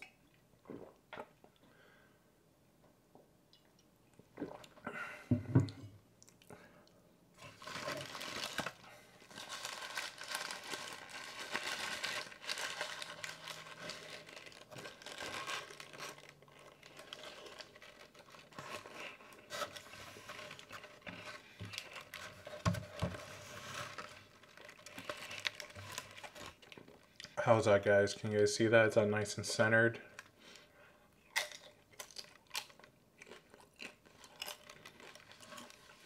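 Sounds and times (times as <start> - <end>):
paper wrapper crinkling: 7.4 - 27.1, 34.0 - 36.0
biting and chewing: 31.3 - 35.8.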